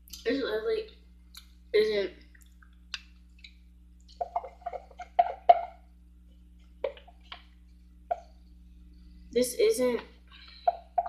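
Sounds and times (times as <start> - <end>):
stick knocking on plastic cup: 4.2 - 5.8.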